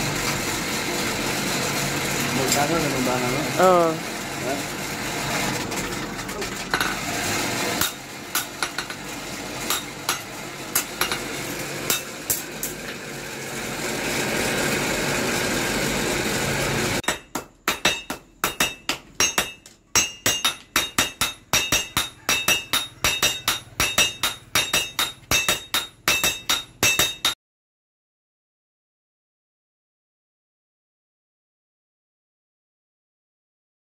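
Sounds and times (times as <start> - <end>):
hammers striking on anvil: 7.8 - 12.8, 17.0 - 27.4.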